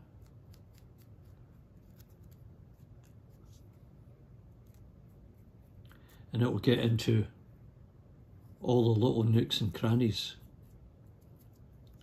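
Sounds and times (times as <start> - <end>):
paintbrush ticks and scratches: 0.0 - 6.9, 9.8 - 12.0
low room hum: 0.0 - 12.0.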